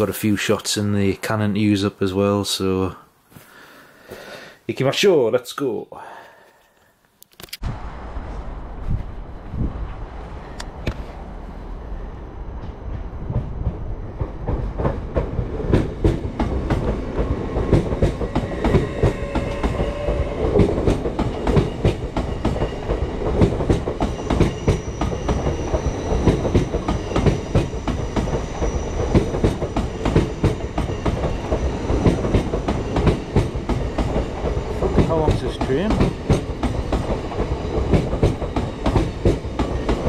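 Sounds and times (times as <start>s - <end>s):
train wheels clattering on rails: 12.6s - 40.0s.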